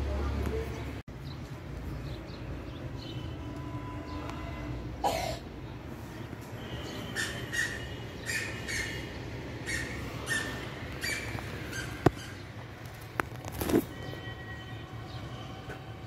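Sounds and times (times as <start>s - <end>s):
bird chirping: 6.6s - 12.5s.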